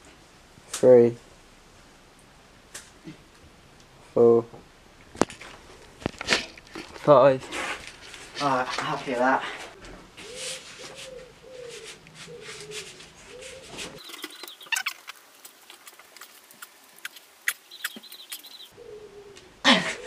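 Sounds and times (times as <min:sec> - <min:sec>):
bird cooing: 0:09.8 - 0:14.9, 0:17.7 - 0:20.0
high arching bird calls: 0:10.1 - 0:19.6.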